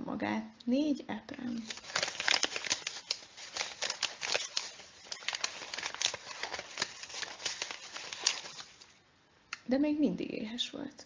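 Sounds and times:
paper rustling and clicking: 0:01.6 - 0:09.0.

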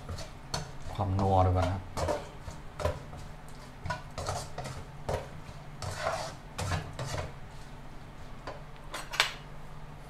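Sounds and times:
utensil scraping a pan: 0:00.0 - 0:07.7.

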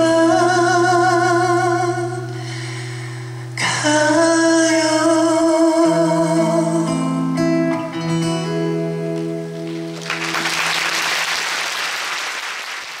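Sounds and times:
instrumental ballad accompaniment: 0:00.0 - 0:11.5
audience applause: 0:09.6 - 0:13.0.

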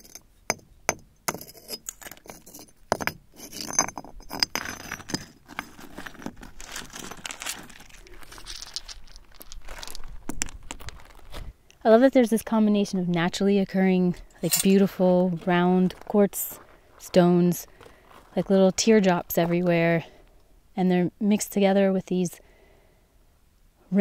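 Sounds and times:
copper slag clinking and crunching: 0:14.3 - 0:15.0.

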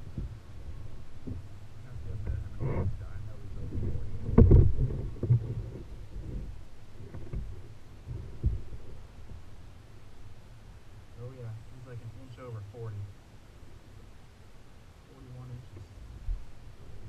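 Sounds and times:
knocks and thumps on kayak: 0:00.0 - 0:09.4
steady low rumble: 0:00.0 - 0:17.0.

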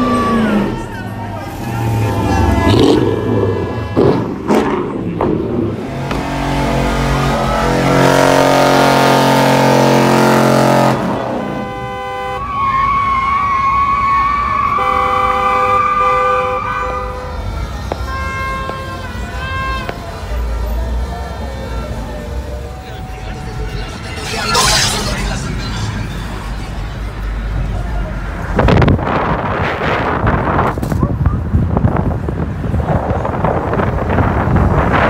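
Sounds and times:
car horns honking: 0:00.0 - 0:27.3
car engine revving high: 0:01.6 - 0:11.8.

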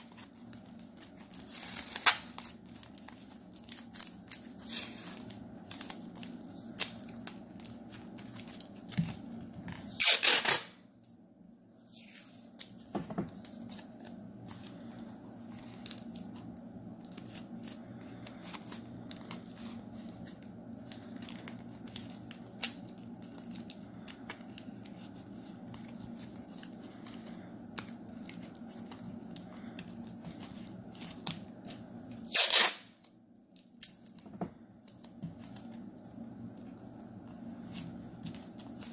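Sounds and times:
foil crinkling and clicks: 0:00.0 - 0:11.1, 0:11.8 - 0:38.9
masking tape ripped off roll: 0:09.8 - 0:10.8, 0:32.2 - 0:33.0.

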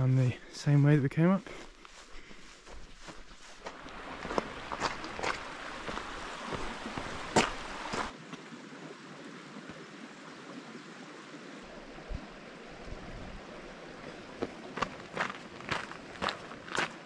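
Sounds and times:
footsteps: 0:01.3 - 0:08.1, 0:14.4 - 0:17.0
running water: 0:01.9 - 0:17.0.

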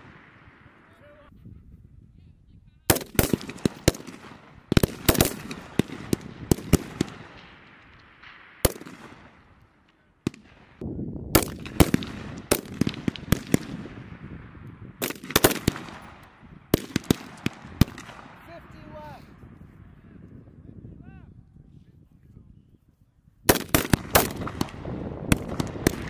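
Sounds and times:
rifle shots echoing: 0:00.0 - 0:01.0, 0:02.9 - 0:18.8, 0:23.5 - 0:26.0.

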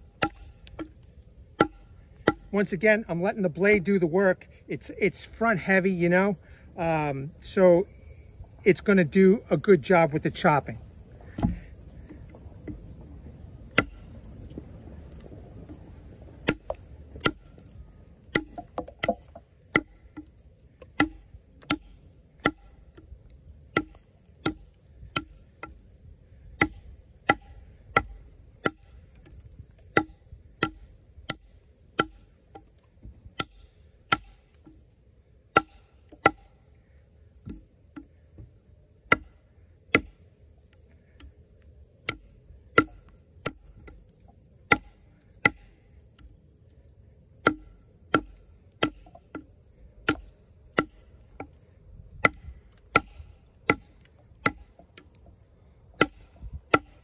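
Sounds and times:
high insect trill: 0:00.0 - 0:57.0
knife chopping into wood: 0:00.2 - 0:00.9, 0:01.6 - 0:02.5, 0:11.3 - 0:12.8, 0:13.8 - 0:14.0, 0:16.4 - 0:17.5, 0:18.3 - 0:20.3, 0:20.9 - 0:22.7, 0:23.8 - 0:24.6, 0:26.6 - 0:28.9, 0:33.4 - 0:34.8, 0:35.5 - 0:36.5, 0:39.1 - 0:39.3, 0:39.9 - 0:40.2, 0:44.7 - 0:45.7, 0:47.4 - 0:51.6, 0:52.2 - 0:55.1, 0:56.0 - 0:57.0.

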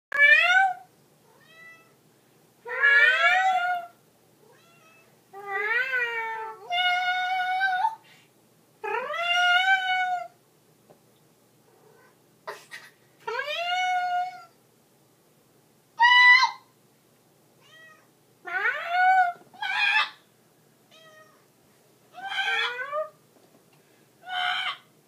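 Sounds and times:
cat meowing: 0:00.2 - 0:02.0, 0:02.7 - 0:08.0, 0:17.6 - 0:20.2, 0:20.9 - 0:21.4, 0:22.2 - 0:23.2.

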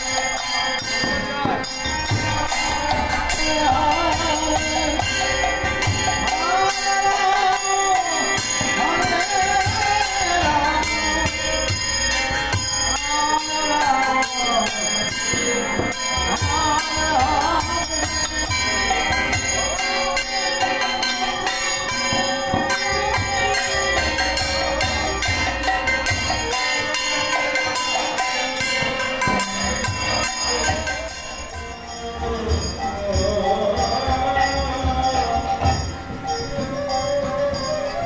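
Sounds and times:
drum: 0:00.0 - 0:06.7, 0:15.0 - 0:38.0
hand cymbals jingling: 0:00.0 - 0:38.0.

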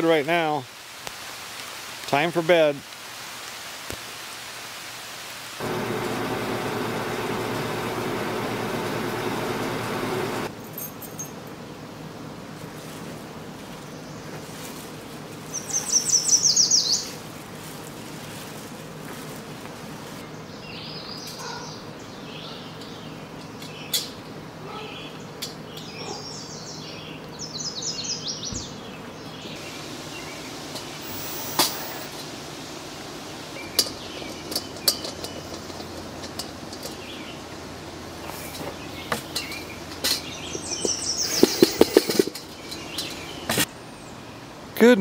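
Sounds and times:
small birds chirping: 0:15.4 - 0:17.5, 0:24.9 - 0:32.1, 0:33.2 - 0:36.0, 0:38.2 - 0:44.5
metal clanks: 0:39.2 - 0:43.6.

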